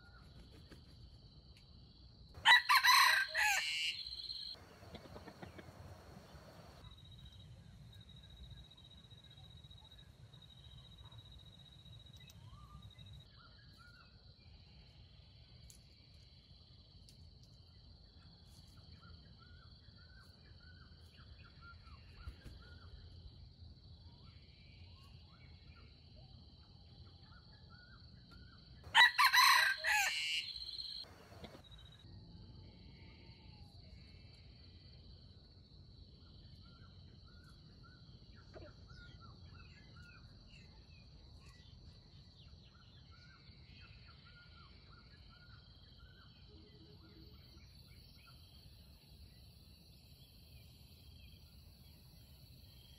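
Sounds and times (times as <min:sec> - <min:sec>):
faint small-bird chirps: 0:00.0 - 0:01.0, 0:03.9 - 0:35.3, 0:36.1 - 0:52.9
rooster crowing: 0:02.4 - 0:06.8, 0:28.9 - 0:31.6
steady high-pitched whine: 0:04.5 - 0:16.2.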